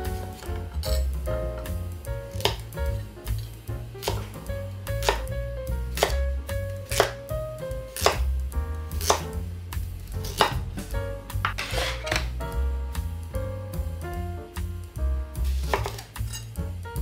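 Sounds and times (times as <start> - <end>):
knife chopping carrot on board: 2.3 - 3.4, 4.0 - 7.2, 8.0 - 9.4, 10.2 - 12.4, 15.4 - 16.3.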